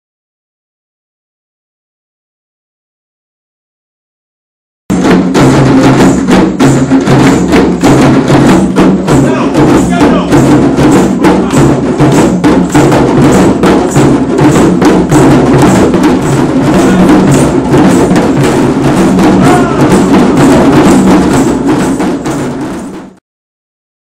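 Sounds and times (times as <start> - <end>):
djembe drums playing: 4.9 - 23.2.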